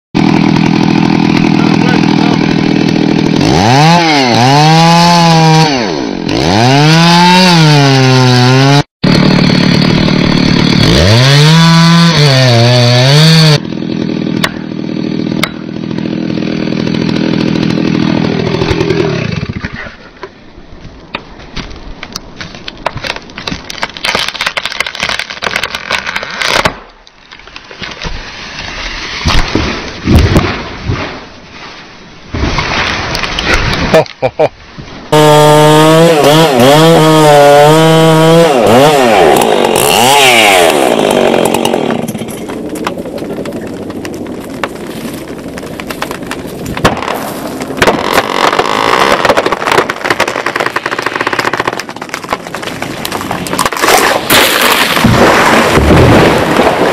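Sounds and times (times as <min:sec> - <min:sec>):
chainsaw revving: 0:00.2 - 0:19.8, 0:35.1 - 0:42.6, 0:45.3 - 0:51.9
wood cracking and snapping: 0:14.0 - 0:19.9, 0:21.1 - 0:31.1, 0:32.4 - 0:33.9, 0:38.7 - 0:56.9.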